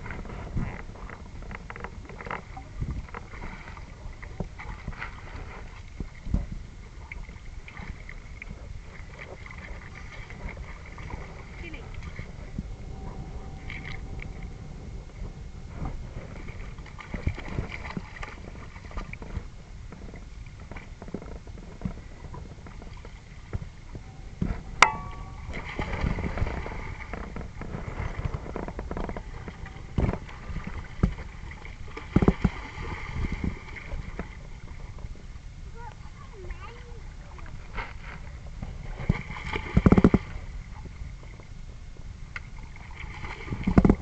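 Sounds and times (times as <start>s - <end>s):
wind rumble on microphone: 0.0s - 44.0s.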